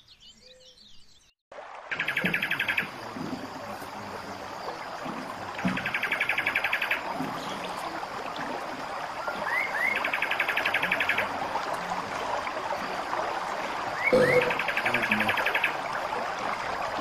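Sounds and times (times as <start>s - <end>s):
songbird trilling: 1.9s - 2.9s, 5.7s - 7.7s, 9.4s - 11.3s, 14.0s - 15.8s.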